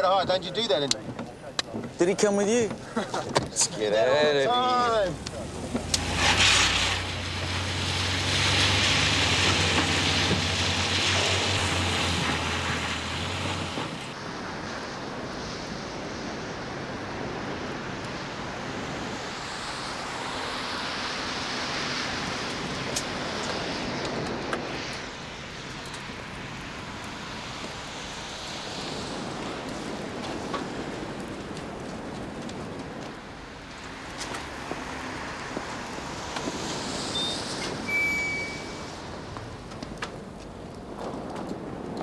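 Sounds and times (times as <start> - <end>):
tyres hissing on wet road: 2.1 - 41.9
car engine hum: 4.5 - 14.2.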